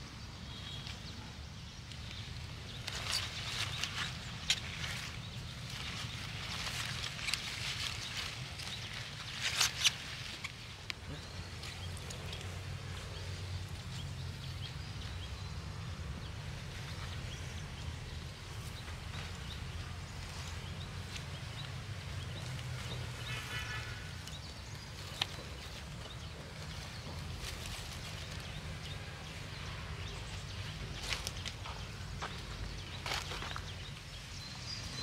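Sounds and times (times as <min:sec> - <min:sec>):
leaves rustling: 0:00.1 - 0:35.0
wicker basket creaking: 0:02.8 - 0:12.8.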